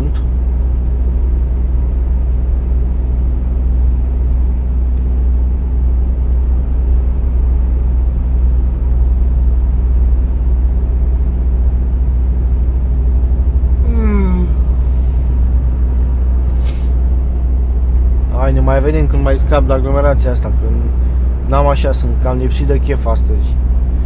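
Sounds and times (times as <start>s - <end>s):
truck diesel engine rumble: 0.0s - 24.0s
road noise: 13.6s - 24.0s.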